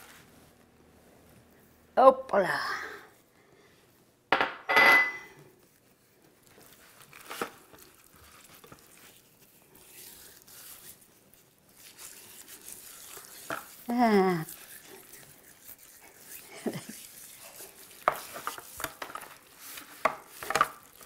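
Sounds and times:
hands rubbing and crinkling: 0:05.6 - 0:21.0
scrape in roasting pan: 0:11.8 - 0:21.0.

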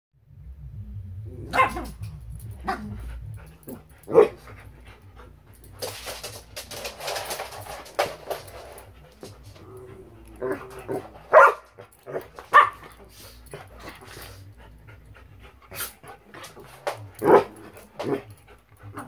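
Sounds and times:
dogs barking sharply: 0:01.5 - 0:02.0, 0:11.3 - 0:13.0.

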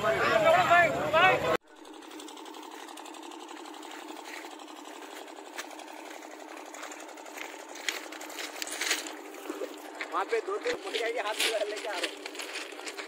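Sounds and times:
small motor buzzing: 0:01.6 - 0:13.0.

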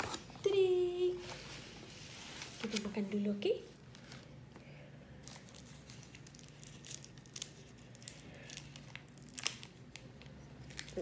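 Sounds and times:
plastic bag crinkling: 0:05.2 - 0:11.0.

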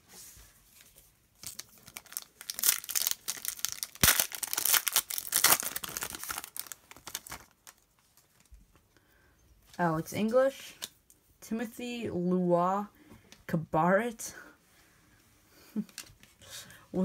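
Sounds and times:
foil wrapper tearing and crinkling: 0:01.4 - 0:07.9.

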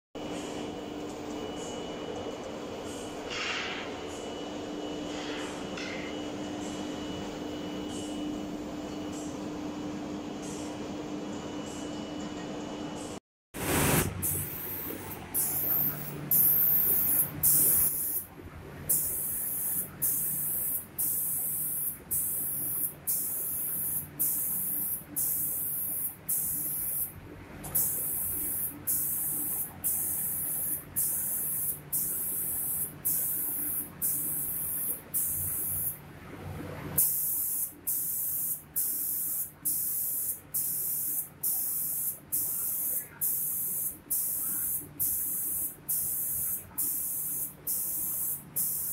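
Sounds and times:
low machine hum: 0:03.9 - 0:37.0
spray gun hissing: 0:13.6 - 0:18.2, 0:18.9 - 0:27.1, 0:27.8 - 0:35.9, 0:37.0 - 0:48.9.

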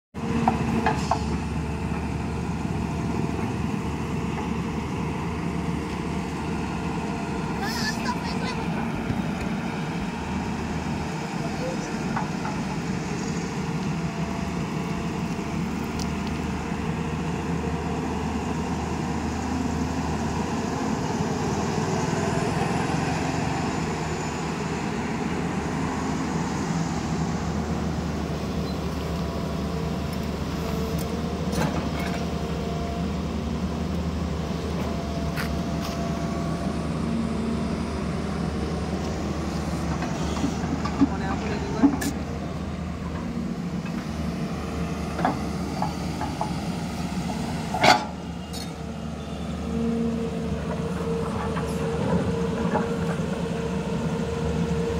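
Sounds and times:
excavator diesel engine running: 0:00.2 - 0:54.9.

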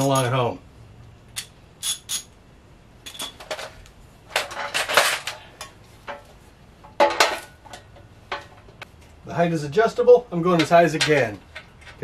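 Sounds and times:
metal parts clanking and rattling: 0:03.0 - 0:08.8, 0:10.5 - 0:12.0.

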